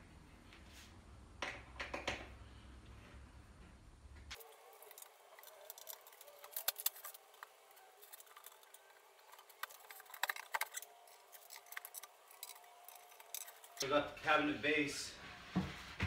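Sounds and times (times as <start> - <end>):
clicks of cabinet panels and fittings: 1.4 - 2.4.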